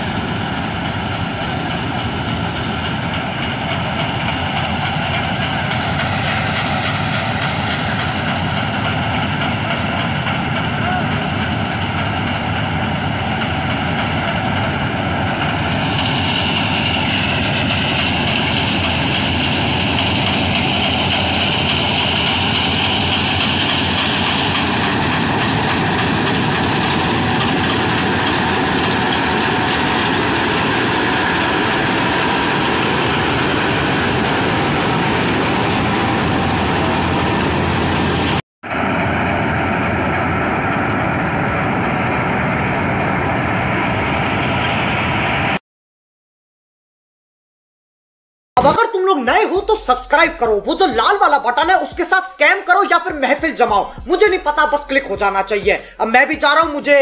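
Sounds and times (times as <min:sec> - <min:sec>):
combine harvester drone: 0:00.0 - 0:45.6
high machine whine: 0:00.0 - 0:45.6.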